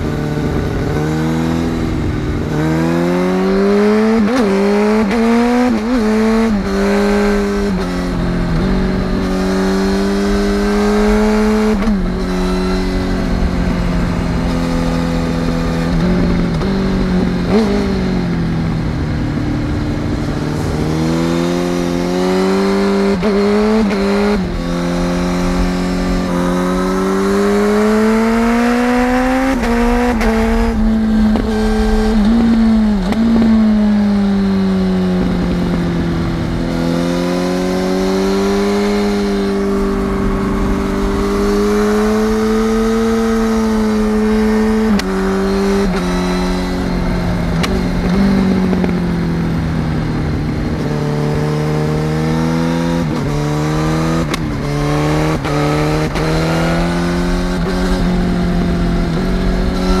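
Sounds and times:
motorcycle engine revving: 0.0 - 60.0
wind rush: 5.6 - 51.6.

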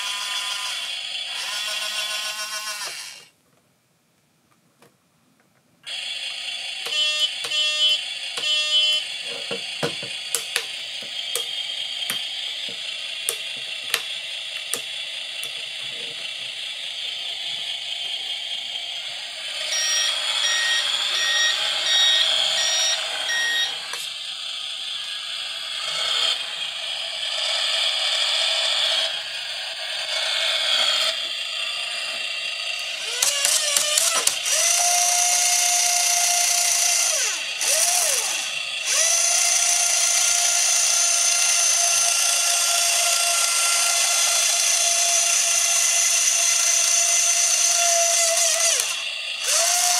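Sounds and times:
rising whines: 5.9 - 42.7, 44.1 - 49.9
fast warning beeps: 19.6 - 23.8.

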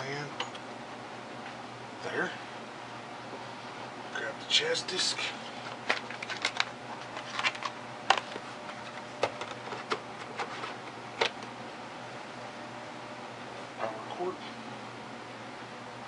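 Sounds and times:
plastic clicks and clatter: 5.8 - 11.5.

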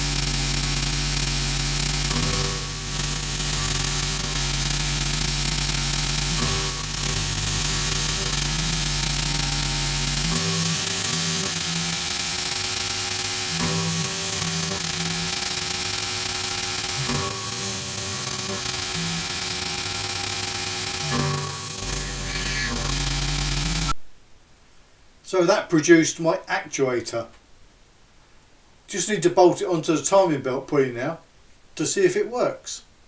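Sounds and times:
hiss of metal cutting: 0.0 - 23.9
low machine hum: 0.0 - 24.0.

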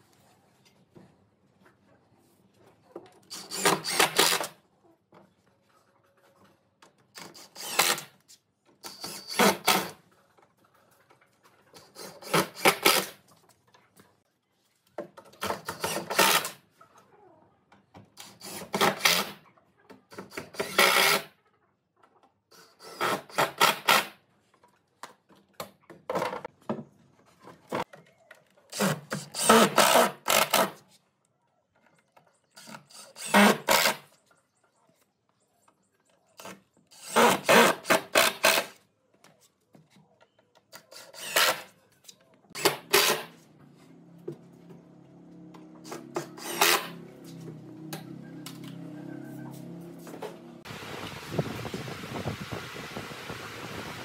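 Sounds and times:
impact driver driving screws: 3.3 - 4.6, 7.2 - 8.1, 37.0 - 38.8, 40.9 - 41.7, 42.6 - 43.3, 45.8 - 47.0.

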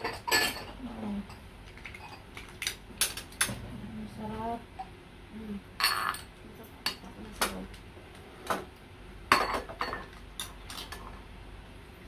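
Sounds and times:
cutlery clinking on bowls: 0.0 - 2.2, 5.8 - 6.3, 9.3 - 11.2.

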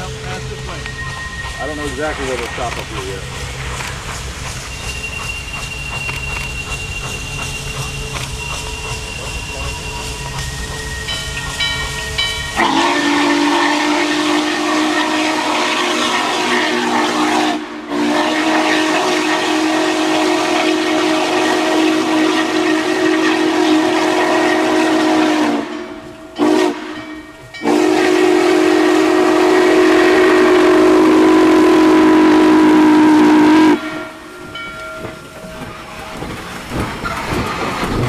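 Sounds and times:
steam hiss: 0.0 - 38.0
steam whistle blasts: 12.5 - 34.4.

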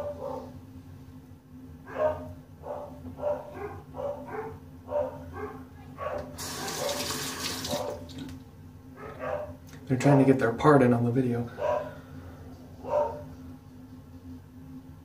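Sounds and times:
dogs barking: 0.0 - 0.6, 1.8 - 8.1, 8.9 - 9.6, 11.5 - 12.1, 12.8 - 13.5
sink tap running: 6.3 - 8.4.

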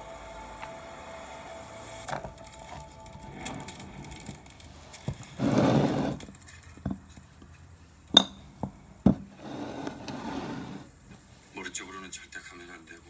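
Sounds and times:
short scrape on table: 5.4 - 6.2, 9.3 - 10.9.

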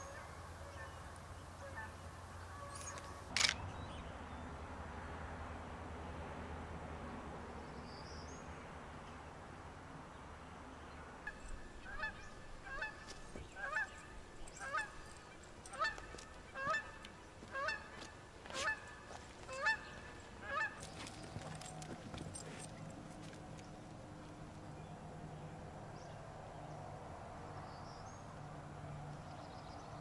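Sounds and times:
goose honking: 0.0 - 3.3.

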